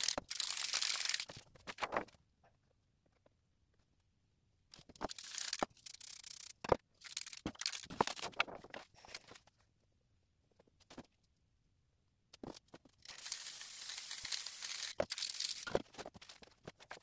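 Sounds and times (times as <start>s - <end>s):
spray paint can hissing: 0.0s - 1.3s, 5.1s - 6.5s, 13.0s - 15.8s.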